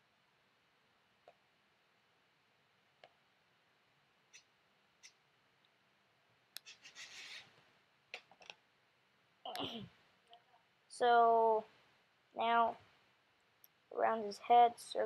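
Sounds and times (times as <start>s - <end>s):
computer mouse clicks: 6.6s - 7.4s
short scratchy rustle: 6.6s - 7.5s.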